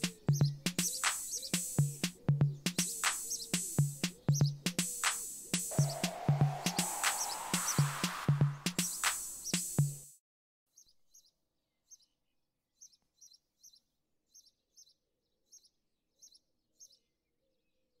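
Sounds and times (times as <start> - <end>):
small bird chirping: 0.0 - 6.1, 10.7 - 18.0.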